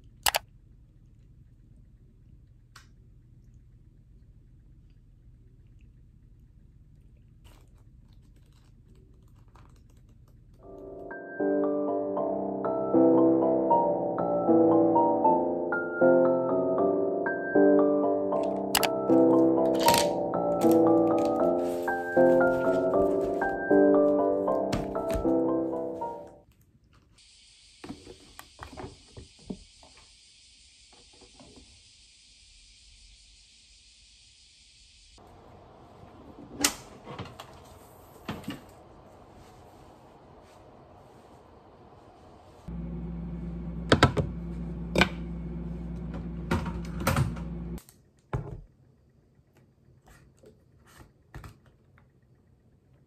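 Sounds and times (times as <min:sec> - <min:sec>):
kitchen appliance humming: 0:42.7 - 0:47.8.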